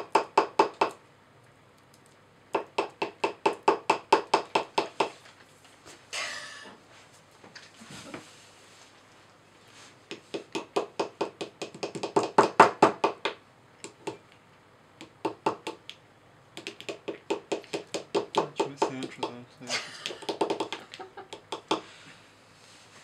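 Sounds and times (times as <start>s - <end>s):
small hammer tapping plaster: 0.0s - 1.0s, 2.5s - 5.1s, 10.1s - 14.2s, 15.0s - 16.0s, 16.6s - 19.4s, 20.1s - 21.9s.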